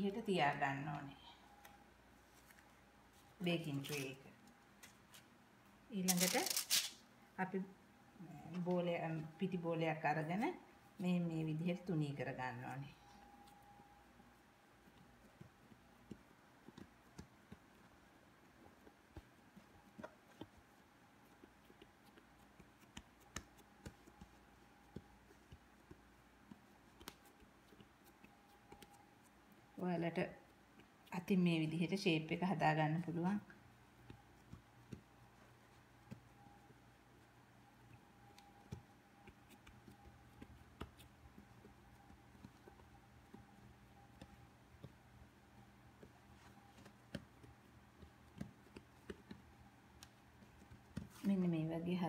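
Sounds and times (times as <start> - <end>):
low steady hum: 0.0 - 52.0
hands patting dough on board: 14.8 - 29.8, 30.5 - 52.0.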